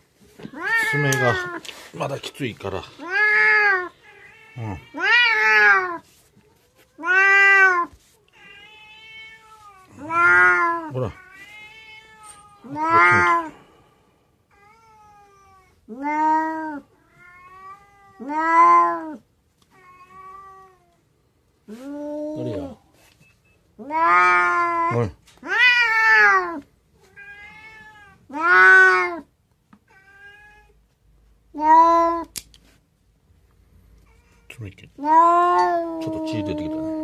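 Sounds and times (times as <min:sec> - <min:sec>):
cat meowing faintly: 0:00.3 - 0:01.7, 0:03.0 - 0:13.6, 0:21.7 - 0:22.8, 0:34.0 - 0:37.0
cat yowling: 0:00.4 - 0:01.6, 0:03.0 - 0:06.0, 0:06.9 - 0:13.6, 0:14.6 - 0:19.2, 0:23.8 - 0:29.3, 0:31.5 - 0:32.3, 0:35.0 - 0:37.0.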